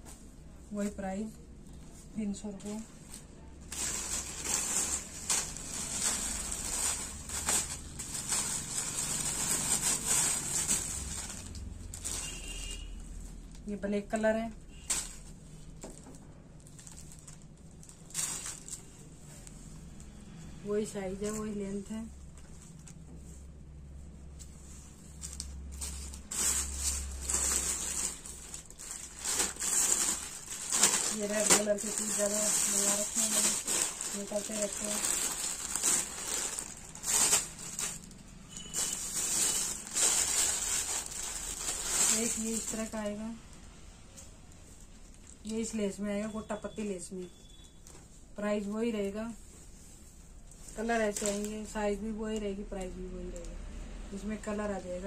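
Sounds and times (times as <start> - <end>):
plastic packets crinkling: 3.6 - 12.8, 14.7 - 18.9, 25.1 - 43.2
cloth rustling: 22.3 - 43.0.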